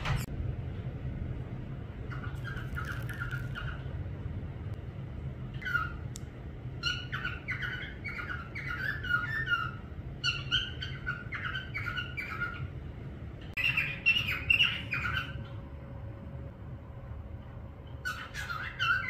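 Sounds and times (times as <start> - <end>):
low hum: 0.0 - 19.0
parrot whistling and chirping: 2.1 - 3.9, 5.5 - 6.1, 6.8 - 12.8, 13.5 - 15.6, 17.8 - 19.0.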